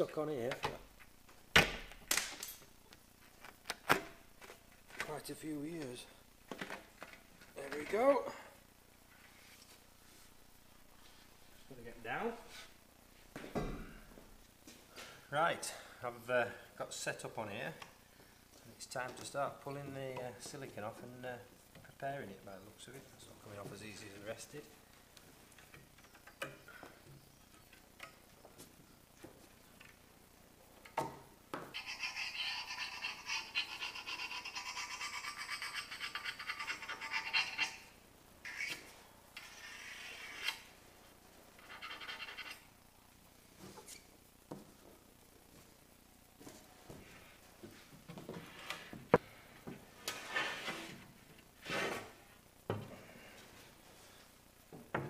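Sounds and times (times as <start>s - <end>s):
blade scraping glass: 39.4s - 40.7s.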